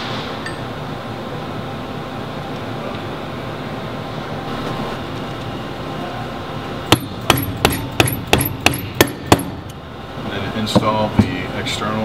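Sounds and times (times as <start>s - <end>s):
steady background noise: 0.0s - 12.0s
hammer tapping metal: 6.9s - 9.8s.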